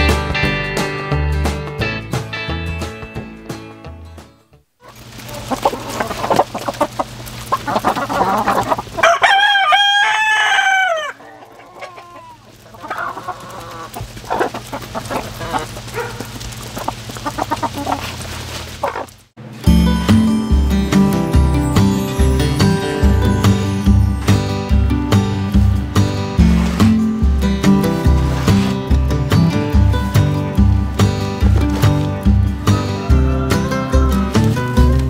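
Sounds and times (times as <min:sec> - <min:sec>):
chickens clucking: 0:04.8 - 0:19.2, 0:31.3 - 0:35.0
rooster crowing: 0:09.0 - 0:12.2, 0:32.8 - 0:34.4.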